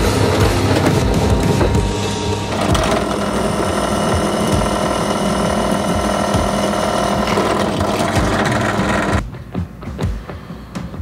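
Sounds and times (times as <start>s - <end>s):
drill press drilling into metal: 2.5s - 9.2s.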